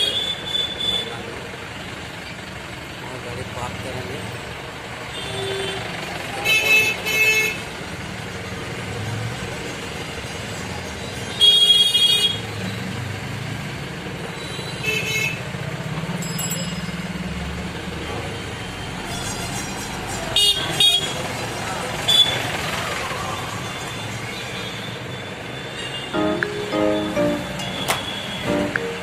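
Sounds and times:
road noise: 0:00.0 - 0:29.0
vehicle horns honking: 0:25.8 - 0:29.0.

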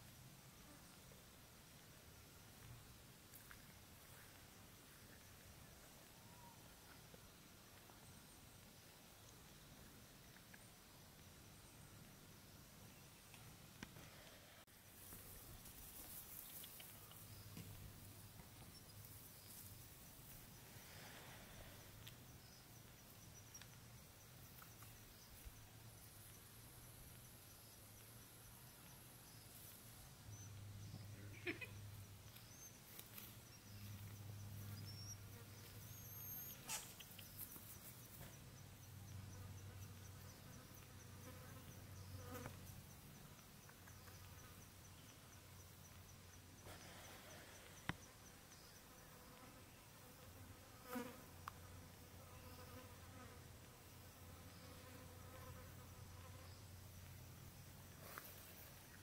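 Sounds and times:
insect buzzing: 0:39.0 - 0:43.0, 0:46.8 - 0:56.8.

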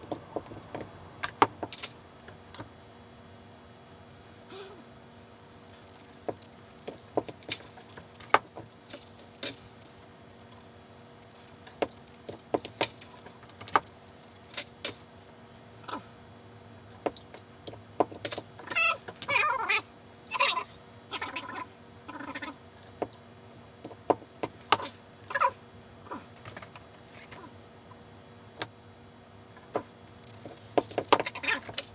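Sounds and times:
high-pitched warbling squeak: 0:05.4 - 0:12.4, 0:13.0 - 0:14.5, 0:30.2 - 0:31.6
rattles: 0:05.4 - 0:15.6, 0:30.1 - 0:31.9.

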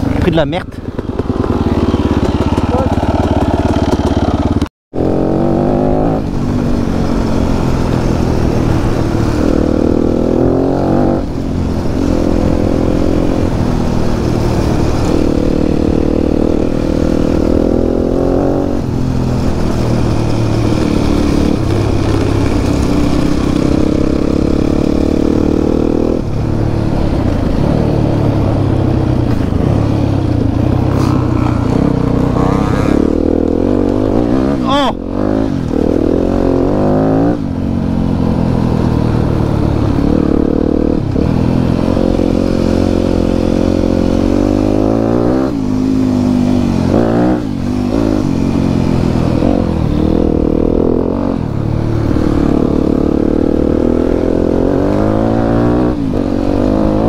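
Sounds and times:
clatter over rough ground: 0:00.0 - 0:04.7
motorcycle engine revving: 0:00.0 - 0:57.0.

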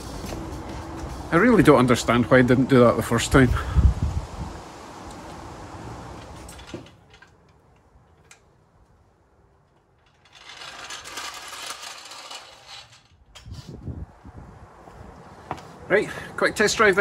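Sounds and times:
steel wheels rattling on concrete: 0:09.5 - 0:13.7.

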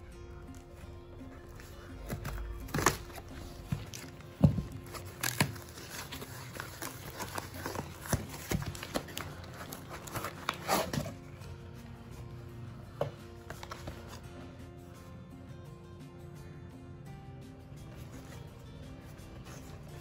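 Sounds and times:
cardboard rustling: 0:01.5 - 0:11.4, 0:13.0 - 0:14.2, 0:17.9 - 0:20.0
scissors snipping cardboard: 0:02.0 - 0:11.2.

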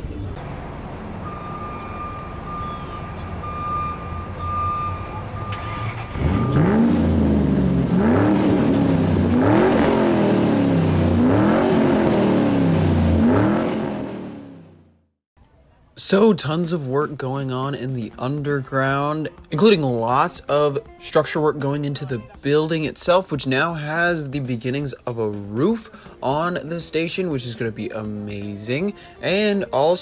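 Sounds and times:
race car engine revving: 0:05.4 - 0:14.8.

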